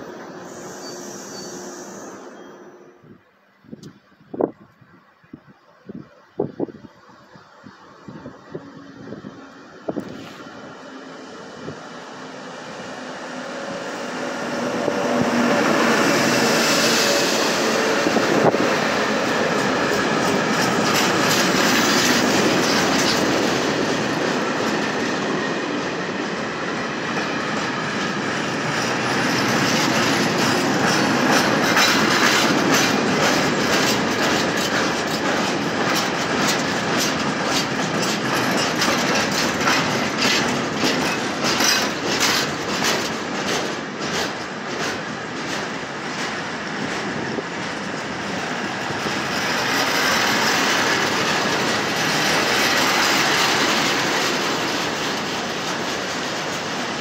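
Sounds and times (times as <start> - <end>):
electric locomotive passing: 0.0 - 57.0
wagons rumbling past: 7.0 - 57.0
wheels clicking over rail joints: 15.0 - 57.0.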